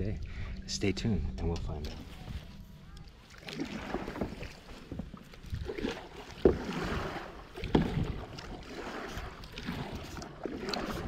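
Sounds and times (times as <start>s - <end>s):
kayak paddle strokes in water: 1.8s - 11.0s
wind on microphone: 4.9s - 11.0s.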